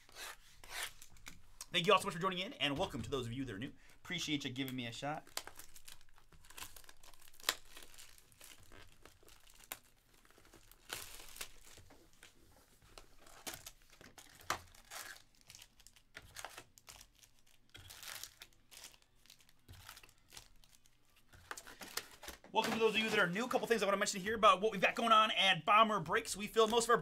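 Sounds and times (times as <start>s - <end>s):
plastic wrap crinkling: 4.0s - 23.9s.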